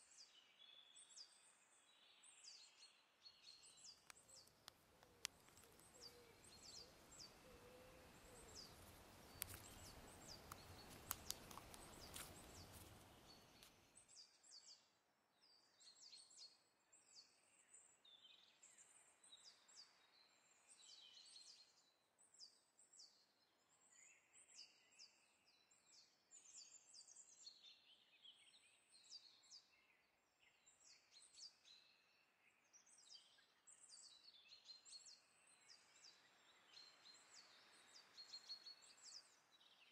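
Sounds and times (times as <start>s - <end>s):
sharp clicks: 9.3s - 12.7s.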